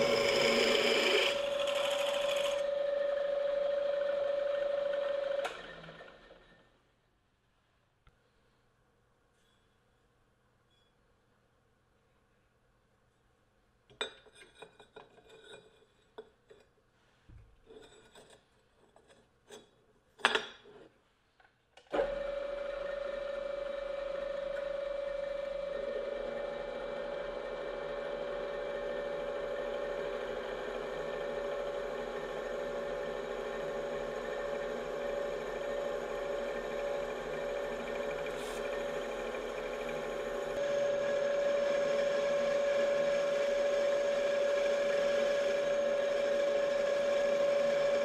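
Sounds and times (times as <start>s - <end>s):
drill bit drilling into steel: 0.0s - 3.1s, 29.3s - 48.0s
drill press motor whining: 0.0s - 6.6s, 21.9s - 48.0s.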